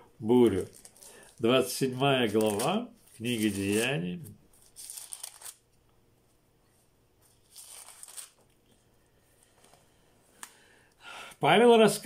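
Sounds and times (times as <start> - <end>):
book pages rustling: 0.6 - 5.7, 6.6 - 10.5.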